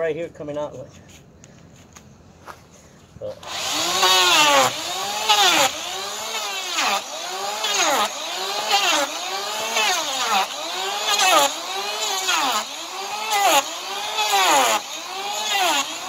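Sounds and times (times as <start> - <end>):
electric hand planer shaving hoof: 3.4 - 16.0.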